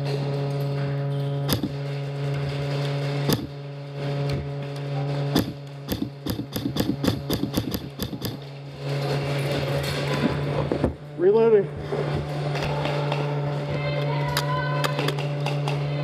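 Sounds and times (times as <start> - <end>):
steady low hum: 0.0 - 16.0
airsoft guns firing: 5.3 - 8.4.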